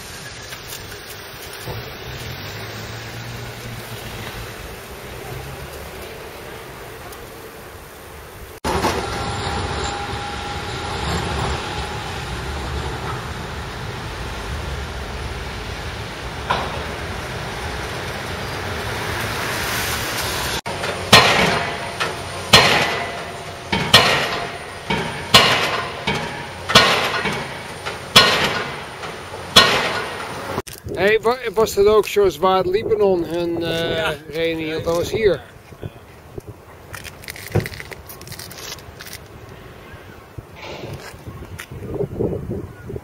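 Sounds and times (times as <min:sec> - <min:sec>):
street traffic rumble: 0:00.0 - 0:43.0
pile driver hammer striking: 0:20.7 - 0:30.6.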